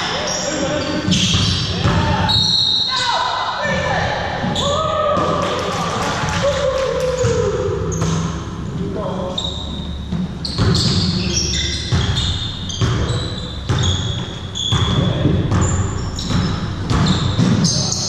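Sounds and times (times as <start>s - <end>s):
sneakers squeaking: 0.0s - 5.6s, 6.3s - 18.0s
basketball bouncing: 7.1s - 8.5s, 9.5s - 18.0s.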